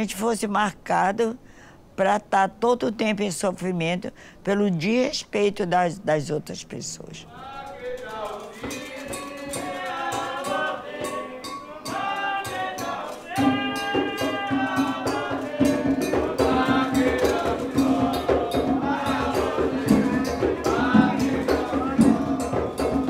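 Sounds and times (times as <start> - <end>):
shaken and struck percussion: 7.0 - 23.0
group singing a ritual chant: 7.3 - 23.0.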